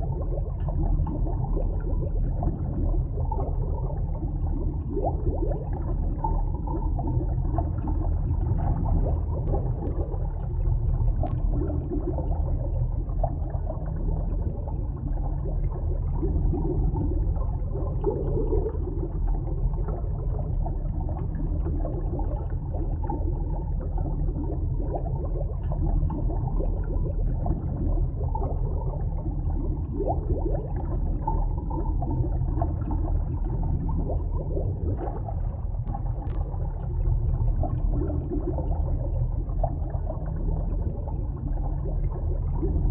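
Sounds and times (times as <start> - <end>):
underwater rumble and gurgling: 0.0 - 42.9.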